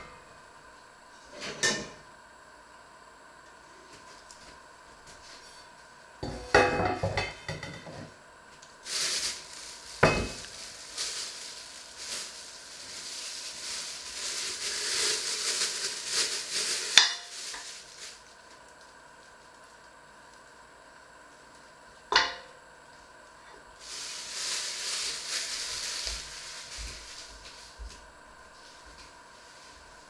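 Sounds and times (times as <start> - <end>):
plastic bag crinkling: 8.8 - 20.6, 23.8 - 30.0.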